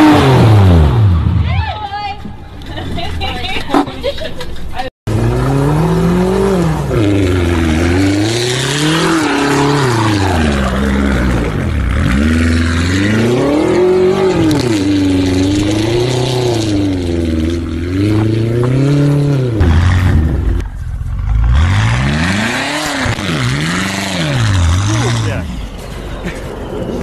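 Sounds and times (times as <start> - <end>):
car engine revving: 5.1 - 25.7.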